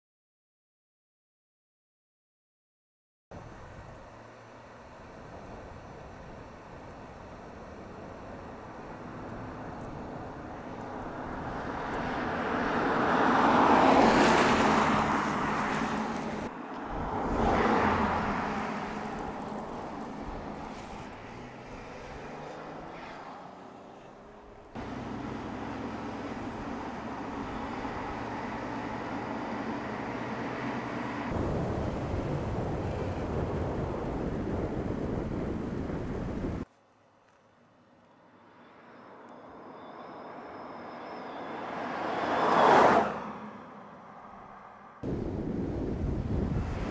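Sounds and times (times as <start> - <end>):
engine hum: 3.4 - 46.9
road and wind noise: 3.4 - 46.9
car driving past: 38.3 - 46.9.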